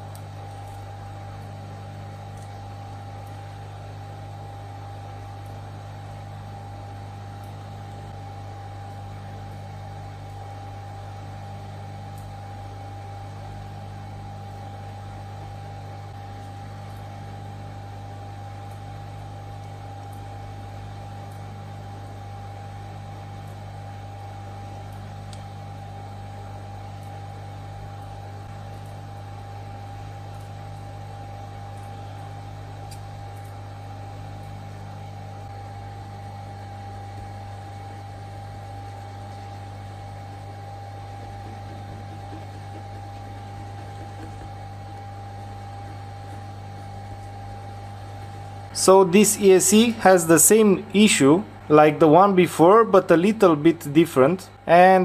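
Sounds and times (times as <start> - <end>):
constant high whine: 0.0 - 55.0
electrical hum: 0.0 - 55.0
high whine: 34.6 - 55.0.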